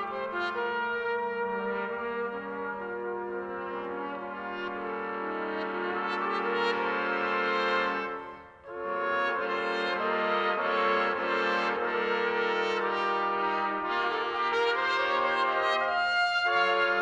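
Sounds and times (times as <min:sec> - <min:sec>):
trumpet ensemble holding chords: 0:00.0 - 0:17.0.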